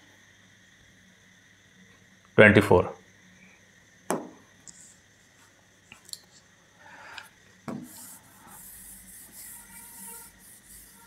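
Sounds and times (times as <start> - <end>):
rubbing on touchscreen: 7.8 - 11.0.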